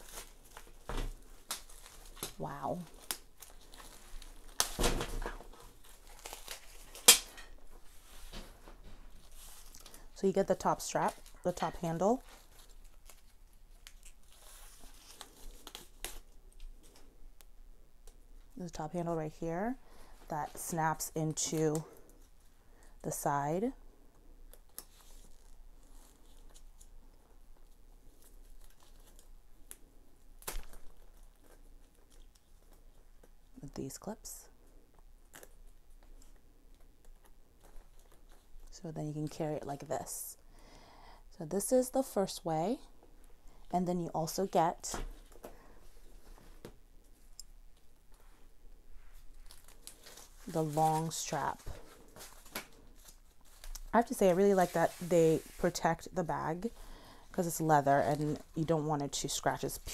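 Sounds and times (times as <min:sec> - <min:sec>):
plastic wrapping crinkling and tearing: 0:00.0 - 0:17.1, 0:24.2 - 0:33.6, 0:34.6 - 0:38.8, 0:49.0 - 0:59.9.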